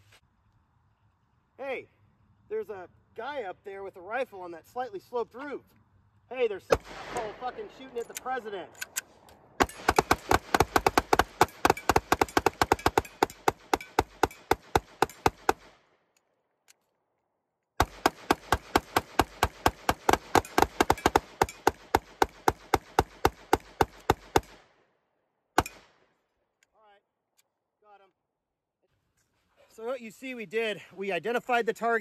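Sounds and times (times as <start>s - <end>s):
pistols firing rapidly: 6.7s - 8.0s, 9.6s - 15.8s, 17.8s - 24.6s.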